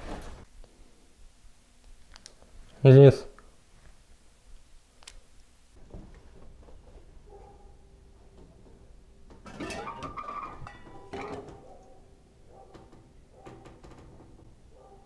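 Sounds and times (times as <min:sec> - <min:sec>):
dishes clattering: 0:08.3 - 0:14.5.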